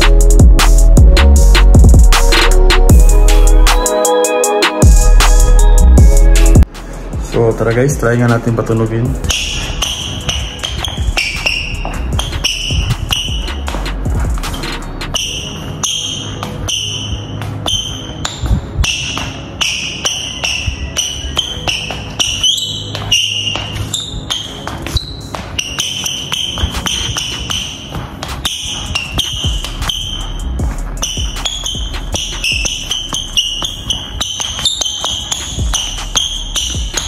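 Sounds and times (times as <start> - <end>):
shoes squeaking on tile floor: 8.4 - 37.0.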